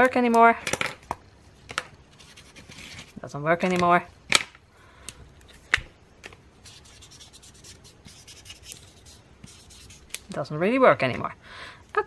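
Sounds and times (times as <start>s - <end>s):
marker scribbling on paper: 6.6s - 10.1s.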